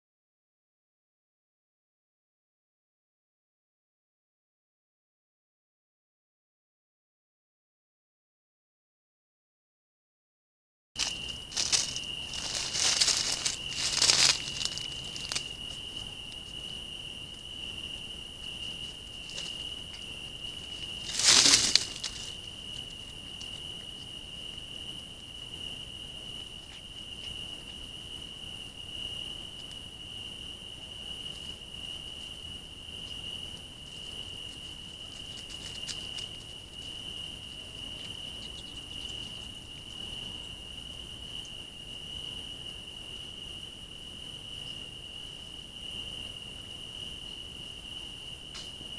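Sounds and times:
loud rustle: 0:11.0 - 0:15.8, 0:20.7 - 0:22.5.

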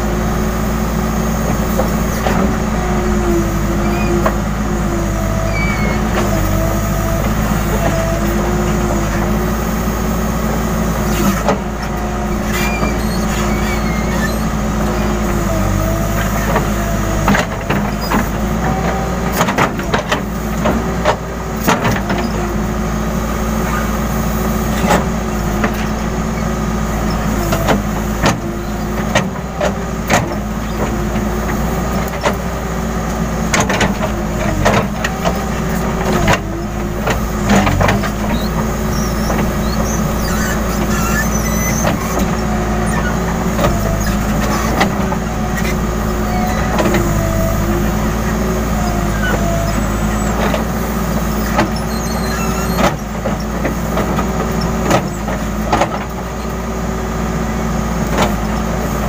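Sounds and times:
diesel engine running under load: 0:00.0 - 0:59.0.

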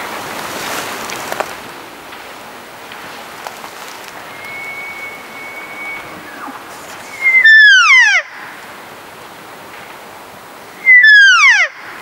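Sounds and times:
elk mews: 0:04.2 - 0:08.3.

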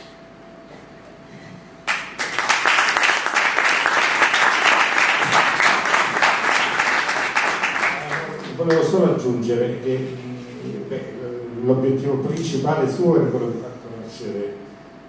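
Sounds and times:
audience applauding: 0:01.9 - 0:08.9.

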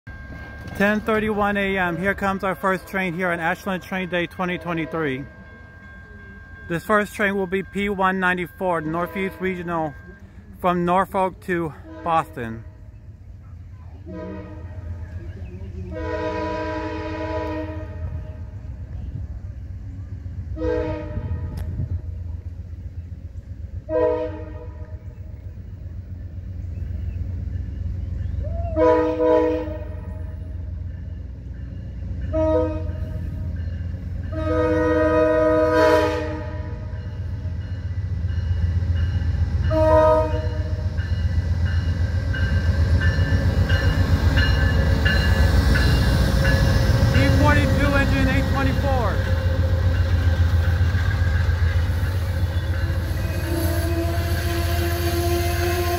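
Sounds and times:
locomotive air horn blasts: 0:09.0 - 0:09.9, 0:11.7 - 0:12.7, 0:14.1 - 0:15.0, 0:15.9 - 0:18.5, 0:20.5 - 0:21.8, 0:23.9 - 0:25.2, 0:28.7 - 0:30.3, 0:32.3 - 0:33.5, 0:34.2 - 0:37.0, 0:39.6 - 0:40.9, 0:52.7 - 0:55.9.

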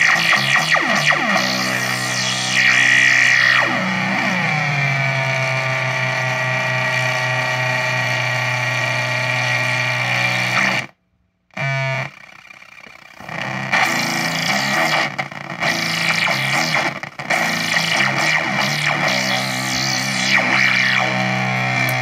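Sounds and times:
buzzy fuzz pedal drone: 0:00.0 - 0:22.0.

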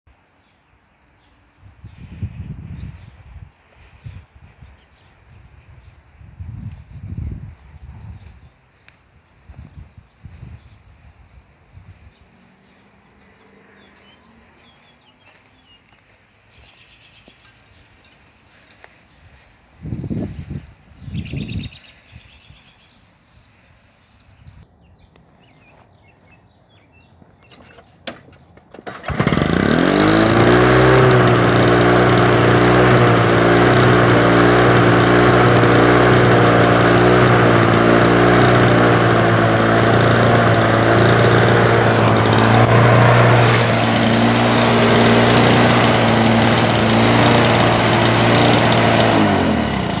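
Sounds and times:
lawn mower engine running: 0:28.1 - 0:50.0.

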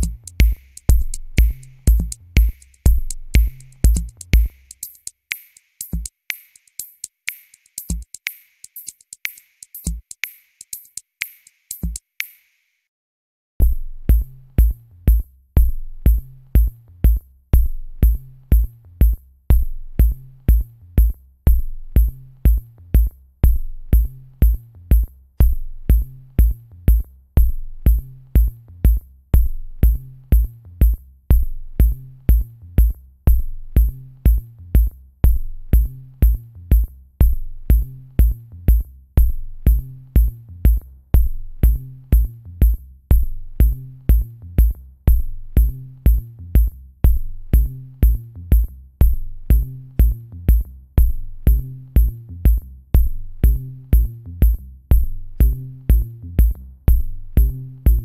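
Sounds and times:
electronic music with drum-machine beat: 0:00.0 - 0:12.5, 0:39.6 - 0:58.0.

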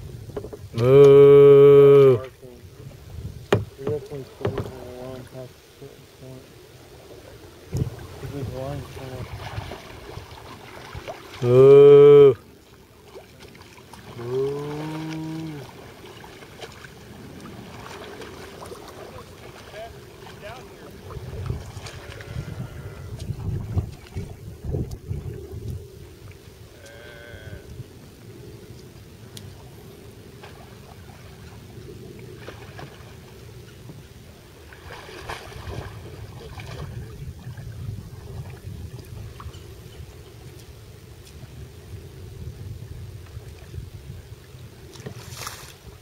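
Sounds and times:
faint river water lapping: 0:00.0 - 0:46.0
cow mooing: 0:00.8 - 0:02.3, 0:11.4 - 0:12.4, 0:14.2 - 0:15.7, 0:21.9 - 0:23.2, 0:26.7 - 0:27.8.

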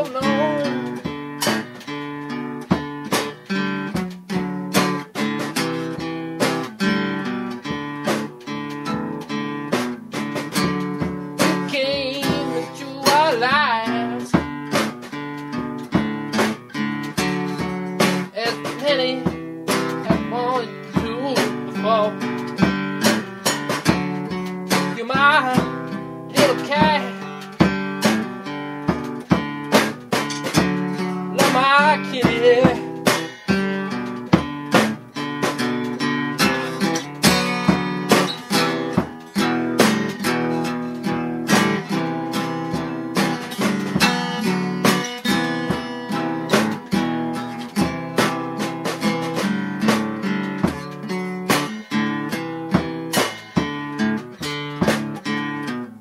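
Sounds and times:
person singing: 0:00.0 - 0:01.2, 0:11.4 - 0:14.6, 0:18.0 - 0:22.4, 0:24.7 - 0:28.2, 0:31.0 - 0:34.0
strummed acoustic guitar: 0:00.0 - 0:56.0.

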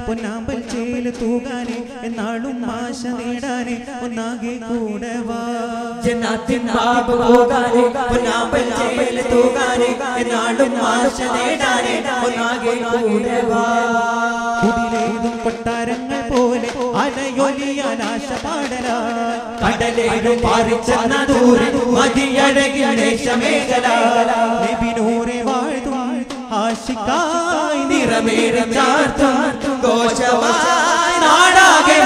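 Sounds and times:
male voices chanting in chorus: 0:06.0 - 0:32.0
frame drums struck by hand: 0:14.7 - 0:22.3.

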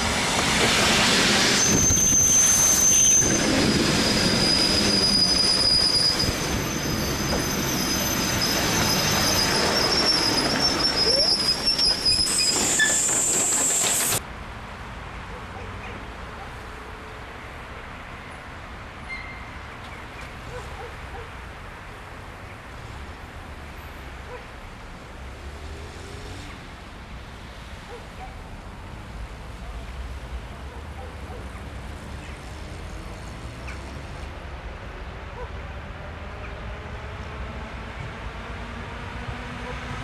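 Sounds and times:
distant train rumble and hiss: 0:00.0 - 0:40.0.

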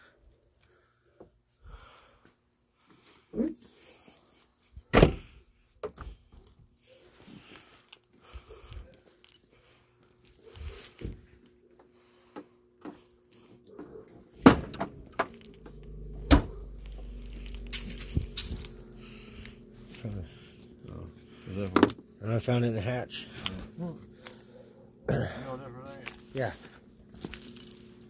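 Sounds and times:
faint steady hum: 0:05.5 - 0:28.0
clatter of objects handled: 0:16.8 - 0:18.9, 0:25.9 - 0:28.0.

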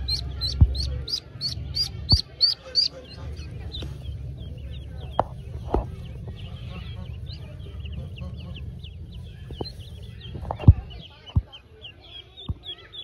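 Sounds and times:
low steady rumble: 0:00.0 - 0:11.9
ducklings peeping: 0:00.0 - 0:13.0.

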